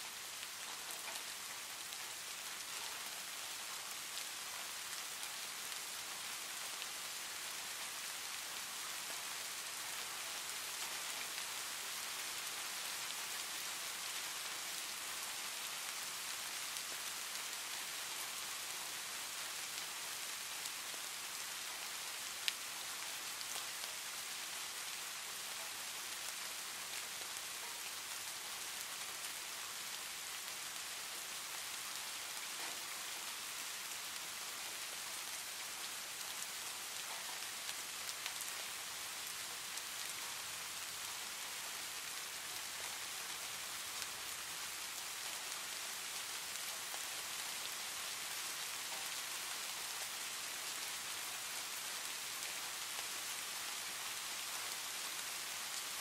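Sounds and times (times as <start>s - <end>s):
steady rain hiss: 0.0s - 56.0s.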